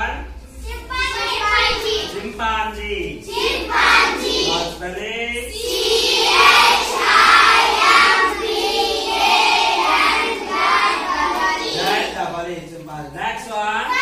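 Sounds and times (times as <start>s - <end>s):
children chanting in unison: 0.6s - 2.3s, 3.2s - 4.8s, 5.5s - 12.2s.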